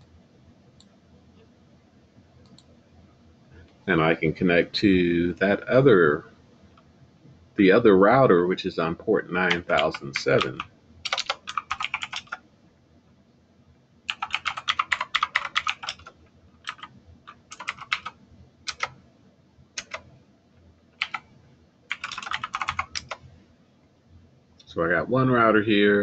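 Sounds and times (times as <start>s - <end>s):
typing on keyboard: 9.5s - 12.4s, 14.1s - 19.0s, 19.8s - 20.1s, 21.0s - 21.2s, 21.9s - 23.2s.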